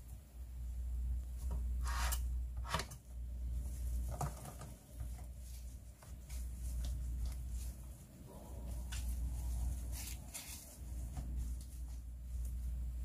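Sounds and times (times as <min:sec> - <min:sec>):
low hum: 0:00.0 - 0:04.2, 0:04.8 - 0:13.0
hands squishing wet leaves: 0:03.6 - 0:13.0
leaves brushing on tray: 0:04.9 - 0:12.8.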